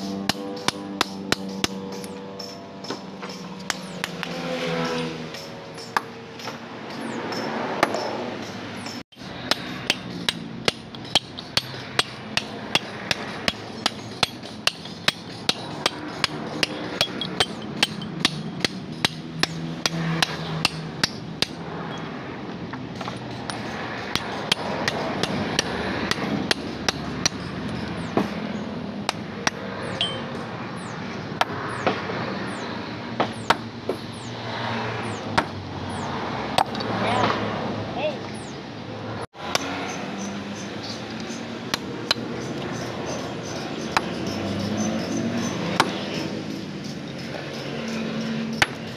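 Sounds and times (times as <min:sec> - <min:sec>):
hammer striking chisel on stone: 0:00.0 - 0:04.2, 0:09.2 - 0:21.6, 0:23.0 - 0:28.3, 0:29.1 - 0:30.4.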